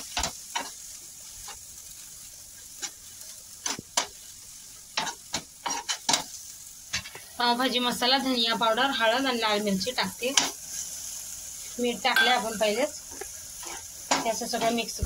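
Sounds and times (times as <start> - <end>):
spatula scraping and tapping pan: 0.0 - 0.8, 3.6 - 4.2, 4.9 - 7.2, 10.3 - 10.6, 12.2 - 14.9
vegetables sizzling in butter: 0.0 - 15.0.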